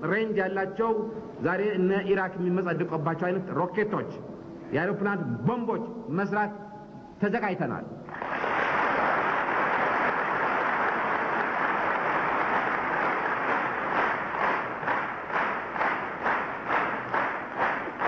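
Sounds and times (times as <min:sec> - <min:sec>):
audience applauding: 0:08.1 - 0:18.0.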